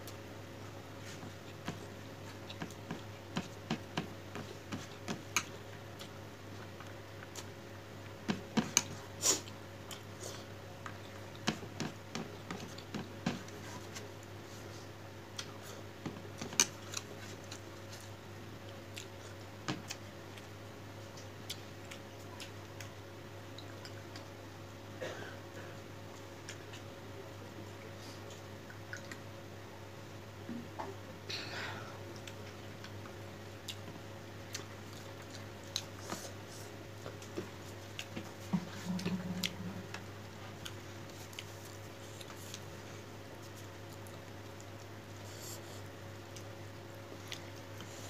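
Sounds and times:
steady low hum: 0.0 - 48.0.

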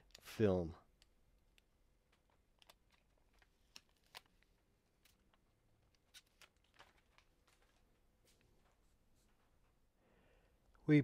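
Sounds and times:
plastic film peeling: 2.1 - 7.9.

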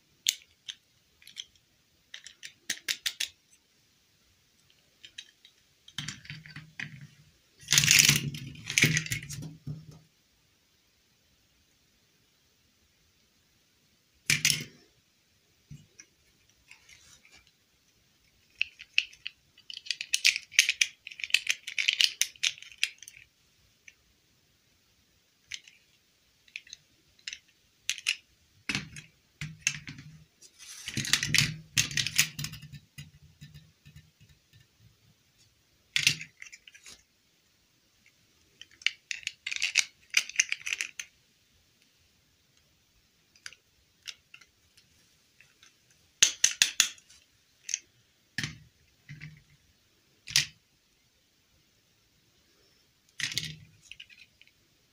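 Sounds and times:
plastic clicking and rattling: 0.2 - 3.4, 38.5 - 41.1, 53.1 - 54.5.

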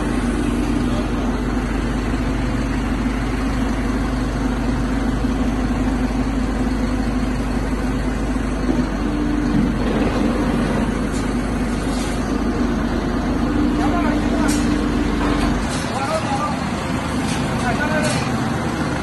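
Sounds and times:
truck engine running: 0.0 - 19.0.

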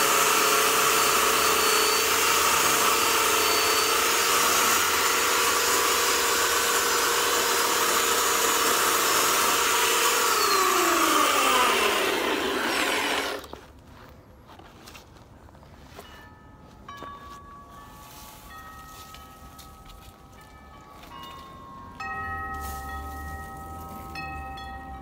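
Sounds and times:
electric chainsaw cutting branches: 0.0 - 13.6.

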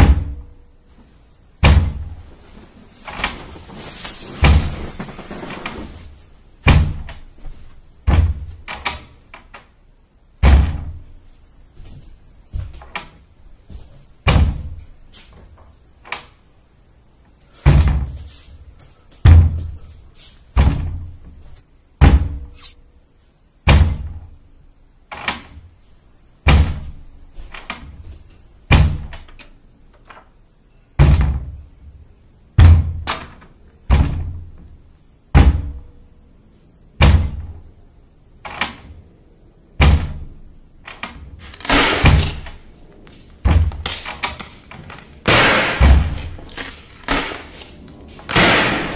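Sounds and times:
heavy banging: 41.4 - 48.9.

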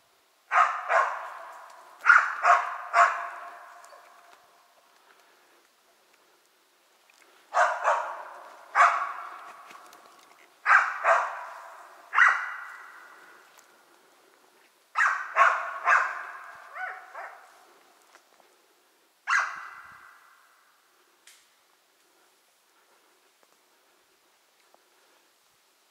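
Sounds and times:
dog barking with echo: 0.5 - 4.0, 7.5 - 9.6, 10.6 - 13.4, 15.0 - 17.7, 19.3 - 20.4.

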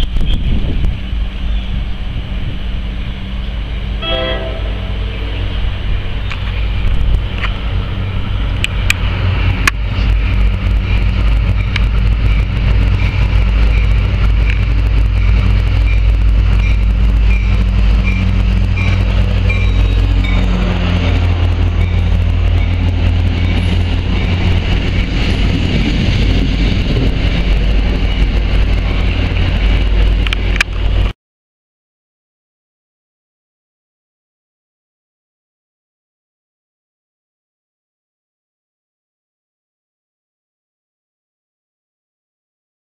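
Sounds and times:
diesel locomotive engine hum: 0.0 - 31.2
train coaches rolling on rails: 0.0 - 31.2.

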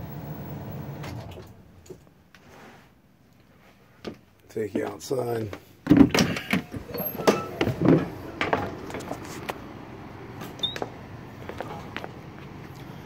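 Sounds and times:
steady low hum: 6.4 - 13.0
footsteps on steps: 7.6 - 9.6, 10.8 - 12.9.

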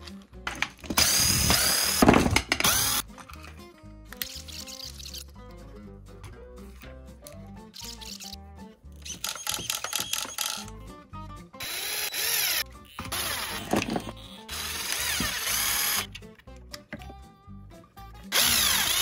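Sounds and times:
electric screwdriver running: 1.0 - 3.0, 11.6 - 16.1, 18.3 - 19.0.

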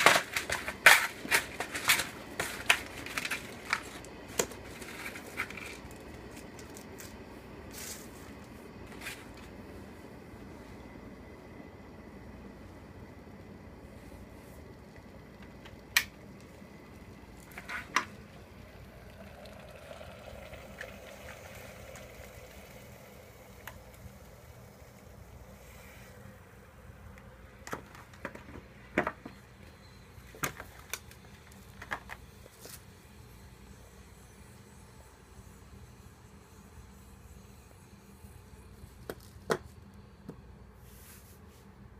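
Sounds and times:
hot water pouring into cup: 17.2 - 25.7.

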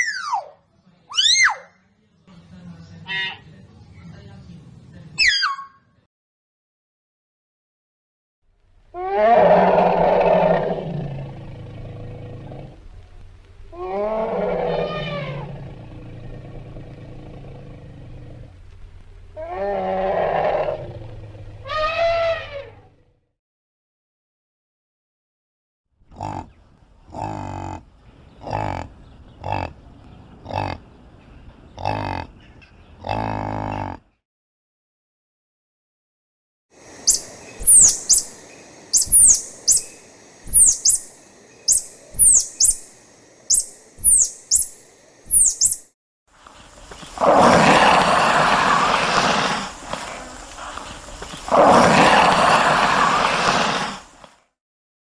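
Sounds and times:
yak calling: 13.7 - 15.5, 21.6 - 22.8, 37.0 - 41.1, 41.7 - 42.9, 43.5 - 45.8
lizard hissing: 36.8 - 45.8, 46.8 - 54.4.

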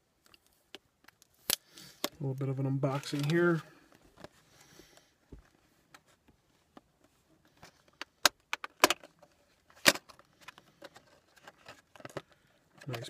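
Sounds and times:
plastic box clicks and crackles: 7.7 - 13.0.

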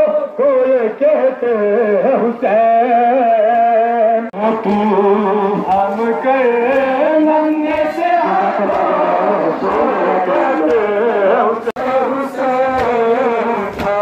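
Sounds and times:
man chanting a lament: 0.0 - 14.0.

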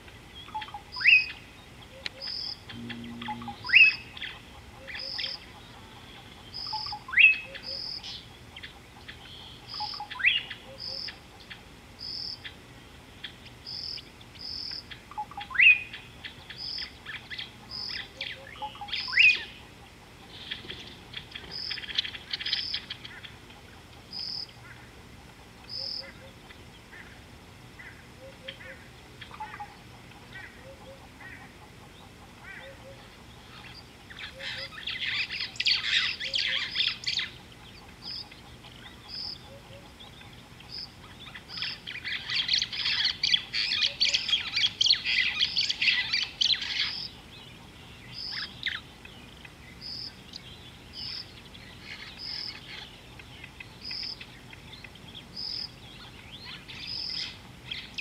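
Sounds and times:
short high bird notes: 2.7 - 4.1.

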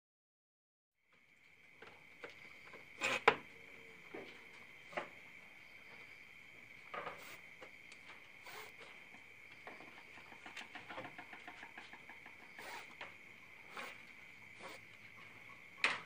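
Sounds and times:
animal scratching in wire cage: 3.0 - 3.3, 7.0 - 7.4, 8.4 - 8.9, 9.9 - 15.2.

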